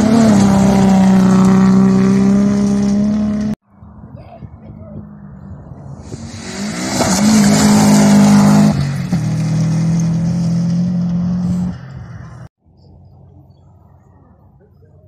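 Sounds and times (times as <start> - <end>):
rally car engine passing: 0.0 - 4.0, 5.0 - 12.5.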